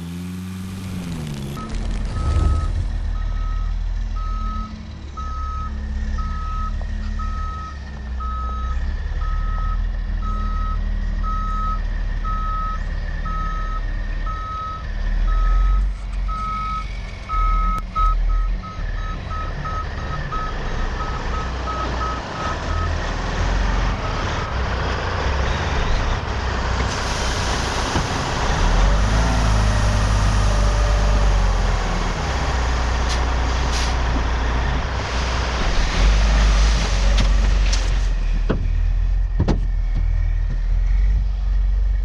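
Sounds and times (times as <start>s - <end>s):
diesel engine running: 0.0s - 42.0s
dirt sliding out: 0.7s - 3.3s
truck backup alarm beeping: 1.6s - 23.2s.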